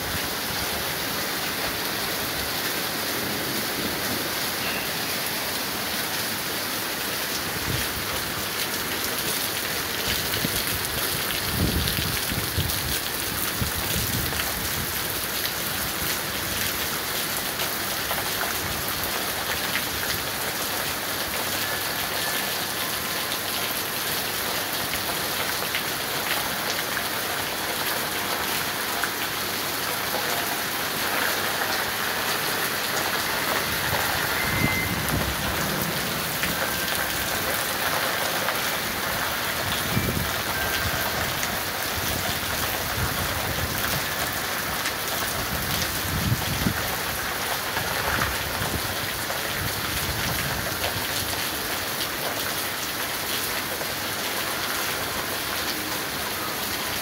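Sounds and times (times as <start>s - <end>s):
heavy rain hissing: 0.0s - 17.9s, 20.2s - 49.8s
thunder rumbling: 33.4s - 38.0s.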